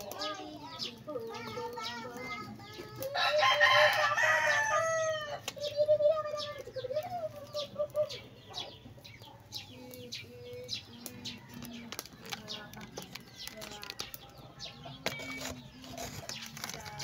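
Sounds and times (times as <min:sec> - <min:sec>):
rooster crowing: 0:03.2 - 0:05.4.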